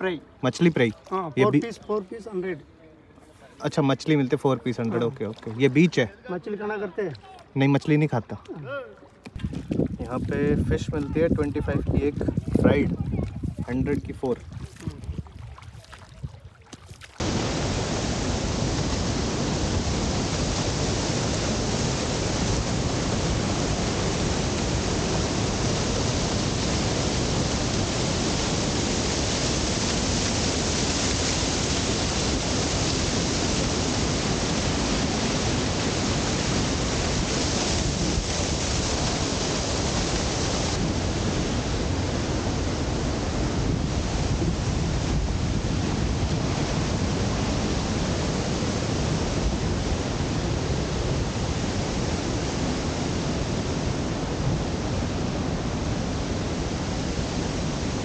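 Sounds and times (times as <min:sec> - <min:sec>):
waterfall rushing: 0:17.2 - 0:43.4.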